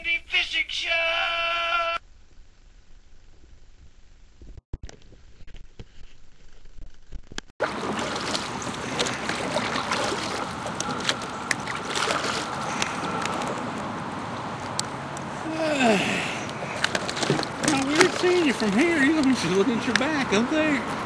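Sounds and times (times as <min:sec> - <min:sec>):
water lapping against boat hull: 0:07.6 - 0:15.6, 0:16.4 - 0:21.0.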